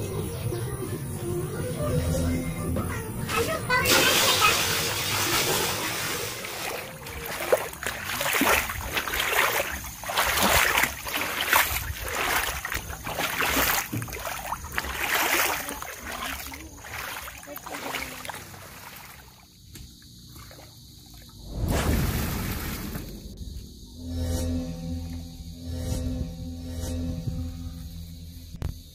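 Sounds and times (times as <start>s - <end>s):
water sloshing and splashing: 3.3s - 23.4s
water gushing into a pit: 3.8s - 19.4s.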